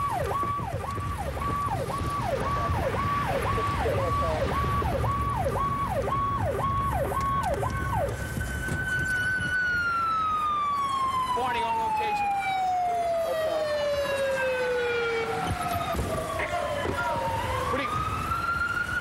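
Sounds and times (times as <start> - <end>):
car rumble: 0.0 - 11.0
police siren: 0.0 - 19.0.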